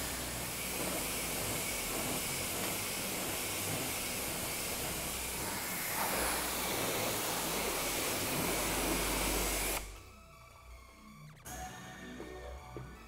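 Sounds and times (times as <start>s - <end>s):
pressure washer spraying water: 0.0s - 9.9s.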